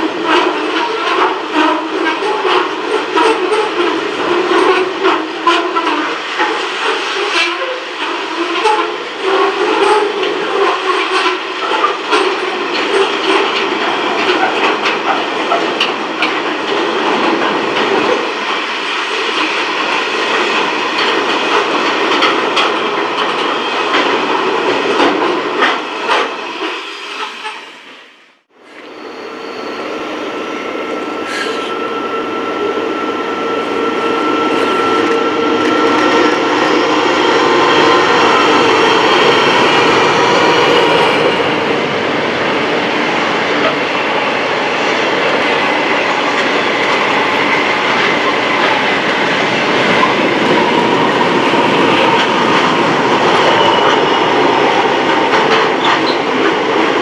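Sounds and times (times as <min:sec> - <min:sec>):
approaching train: 0:00.0 - 0:57.0
freight train passing: 0:00.0 - 0:57.0.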